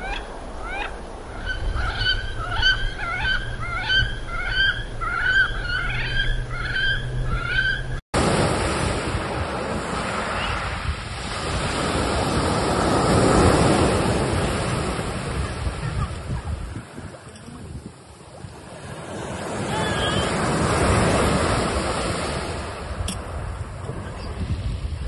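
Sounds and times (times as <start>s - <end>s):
waves washing in: 8.2s - 25.0s.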